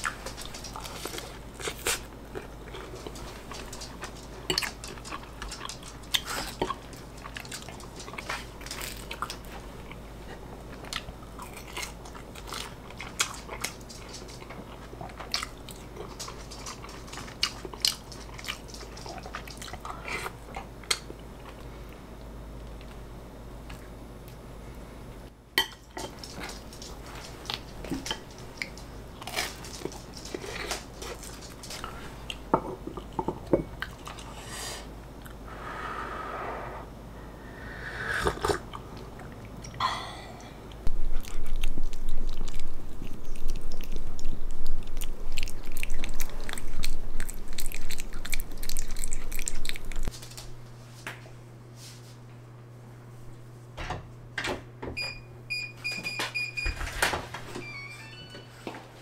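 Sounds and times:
loud crunching chewing: 0:00.0 - 0:21.6, 0:25.9 - 0:33.2, 0:40.8 - 0:50.5.

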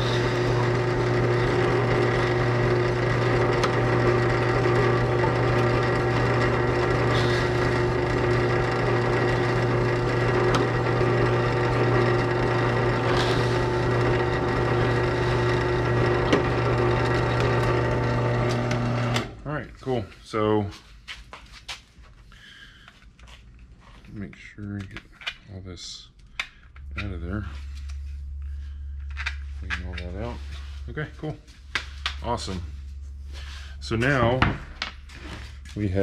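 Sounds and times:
drill bit scraping: 0:00.0 - 0:19.4
drill press motor humming: 0:00.0 - 0:19.4.

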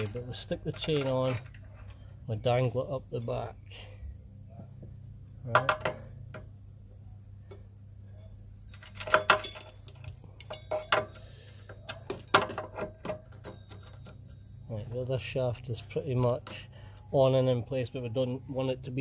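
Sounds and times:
roller chain rattling on sprocket: 0:00.0 - 0:02.0.

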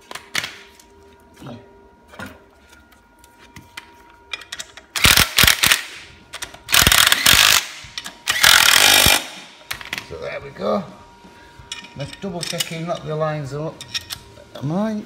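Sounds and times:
impact wrench hammering: 0:06.7 - 0:09.5.

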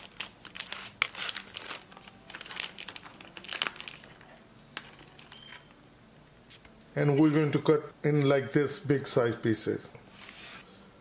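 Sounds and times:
plastic bag crinkling: 0:00.0 - 0:05.7.

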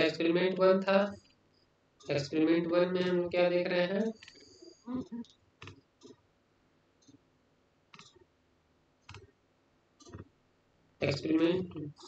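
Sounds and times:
faint computer mouse clicks: 0:07.9 - 0:08.3.

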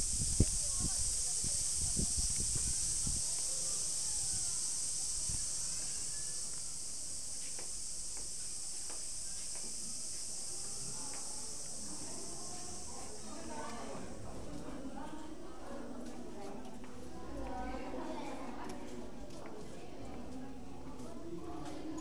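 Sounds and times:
high-pitched hiss: 0:00.0 - 0:14.3
faint distant voices: 0:00.0 - 0:22.0.

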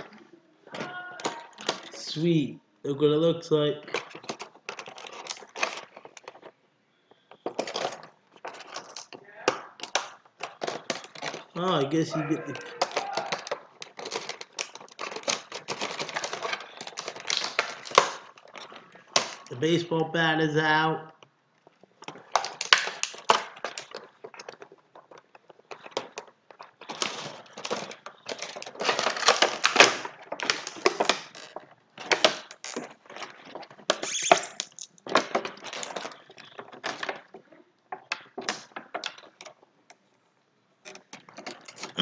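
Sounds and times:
plastic and cardboard crackling: 0:00.0 - 0:02.2, 0:02.9 - 0:42.0
tape being peeled off: 0:32.3 - 0:35.0.

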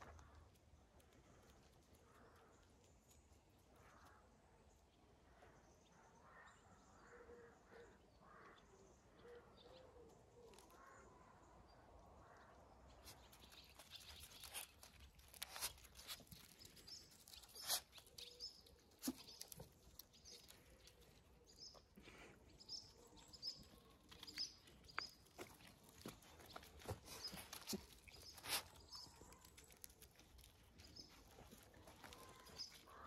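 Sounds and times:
paws scuffling on gravel: 0:13.0 - 0:33.0.

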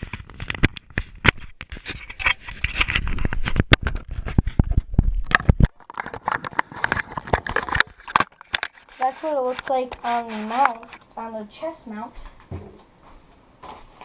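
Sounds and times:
sharp clicks and knocks: 0:00.0 - 0:11.1
straps rubbing on camera housing: 0:06.0 - 0:11.0.

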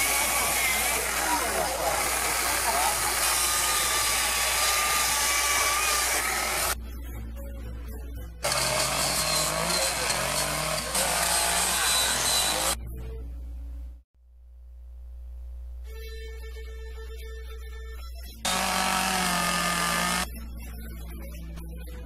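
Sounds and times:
angle grinder grinding wood: 0:00.0 - 0:06.8, 0:08.4 - 0:12.8, 0:18.5 - 0:20.3
chainsaw carving wood: 0:00.0 - 0:06.8, 0:08.4 - 0:12.8, 0:18.5 - 0:20.3.

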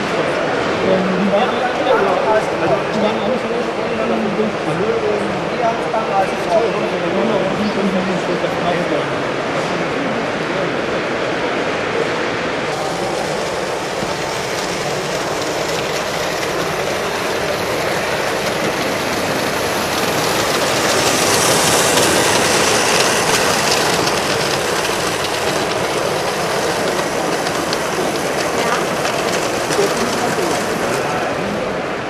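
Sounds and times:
model train wheels clattering: 0:12.8 - 0:31.4.

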